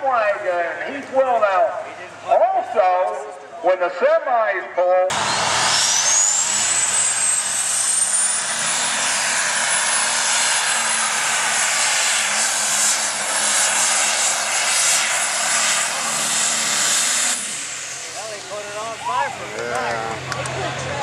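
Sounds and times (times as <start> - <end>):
turbo whistle: 5.1 - 8.4
tractor engine running flat out: 5.1 - 21.0.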